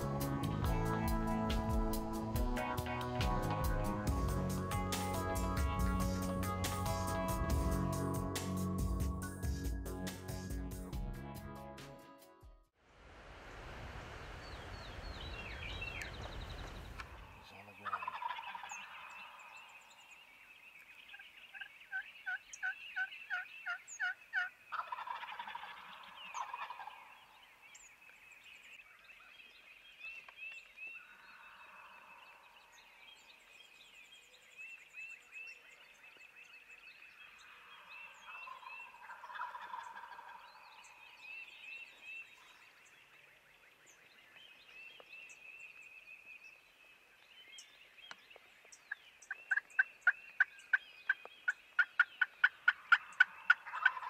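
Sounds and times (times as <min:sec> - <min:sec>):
small birds chirping: 0:14.4 - 0:54.0
quick turkey yelps: 0:17.8 - 0:19.0, 0:21.6 - 0:27.1, 0:38.5 - 0:40.4, 0:51.8 - 0:54.0
turkeys gobbling: 0:17.8 - 0:19.4, 0:21.1 - 0:27.1, 0:38.2 - 0:40.8, 0:49.5 - 0:50.5, 0:51.8 - 0:54.0.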